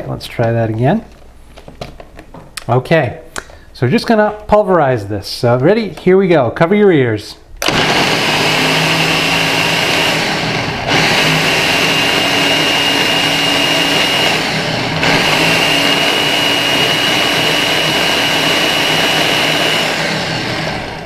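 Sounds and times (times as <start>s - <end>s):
blender crushing frozen fruit: 7.6s - 21.0s.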